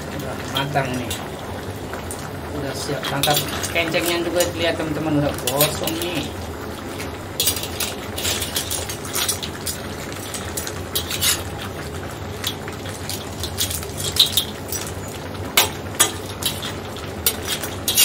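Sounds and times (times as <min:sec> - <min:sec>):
spatula scraping a metal wok: 0:07.0 - 0:11.6, 0:15.6 - 0:18.0.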